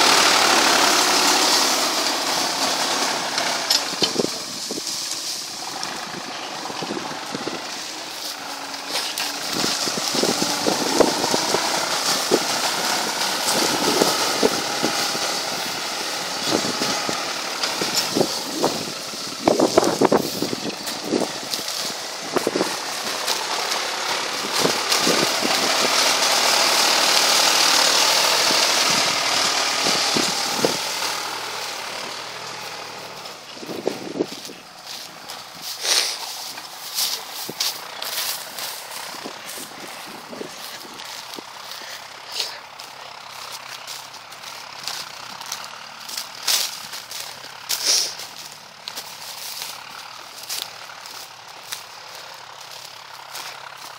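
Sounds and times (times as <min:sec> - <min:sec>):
plough crackling through straw: 0:00.0 - 0:53.9
tractor engine running: 0:00.0 - 0:53.9.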